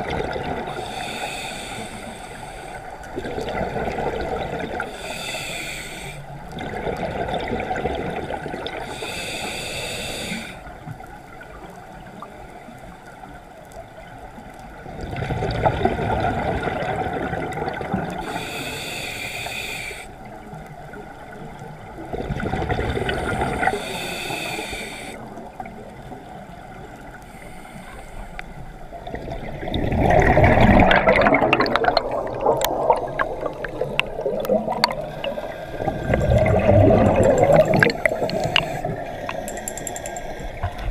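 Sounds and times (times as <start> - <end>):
exhaled bubbles gurgling: 0.0 - 12.2, 14.7 - 19.0, 20.2 - 27.3, 28.6 - 40.9
regulator hissing inhale: 0.7 - 3.1, 4.8 - 6.5, 8.8 - 10.8, 18.2 - 20.3, 23.0 - 25.6, 27.2 - 28.8, 33.3 - 40.8.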